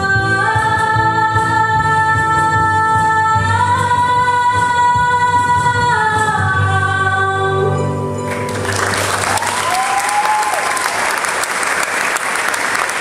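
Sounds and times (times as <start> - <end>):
audience clapping: 8.3 - 13.0
crowd whooping: 8.7 - 13.0.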